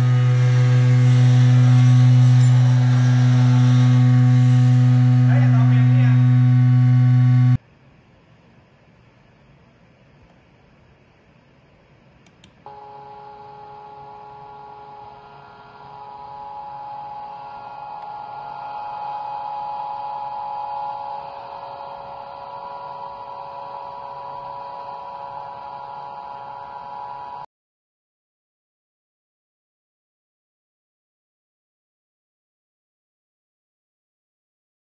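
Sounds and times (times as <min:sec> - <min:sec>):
electric motor and vibrating steel hum: 0:00.0 - 0:07.6, 0:12.7 - 0:27.5.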